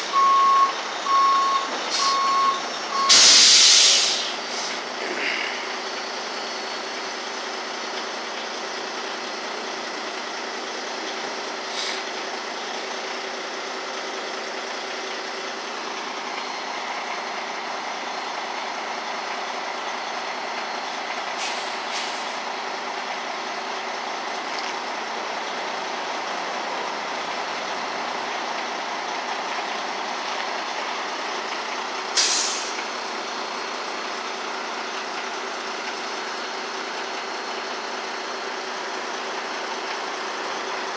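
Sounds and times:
diesel engine running: 0.0s - 40.9s
compressed air hisses: 3.1s - 4.8s, 21.4s - 22.4s, 32.2s - 32.8s.

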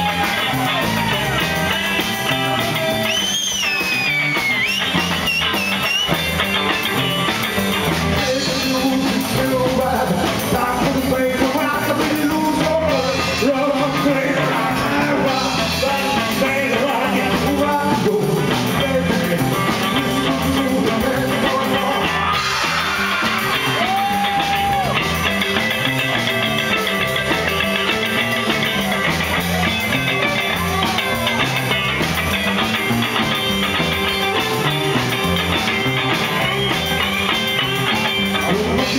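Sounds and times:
drum kit: 0.0s - 38.9s
electric guitars: 0.0s - 38.9s
man singing into a microphone: 8.2s - 22.6s, 38.4s - 38.9s.

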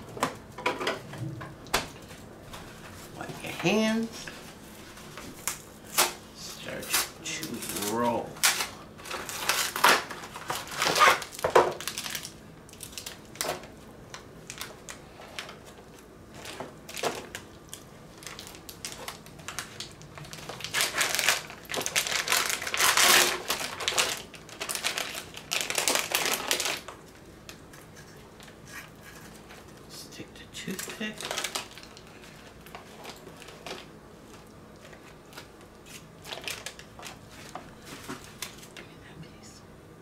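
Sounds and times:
plastic packaging crinkling: 6.8s - 29.8s, 30.6s - 38.8s.

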